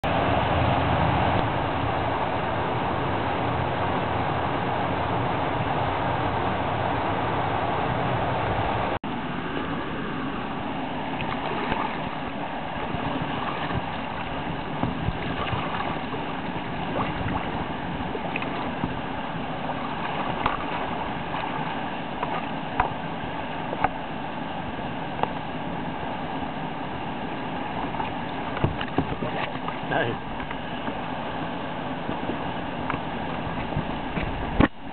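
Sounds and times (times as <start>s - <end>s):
water splashing: 8.3s - 34.9s.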